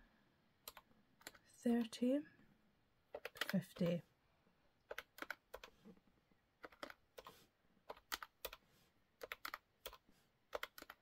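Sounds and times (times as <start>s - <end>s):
calculator keys clicking: 3.2s - 4.0s, 4.9s - 5.7s, 6.6s - 7.3s, 7.9s - 8.6s, 9.2s - 11.0s.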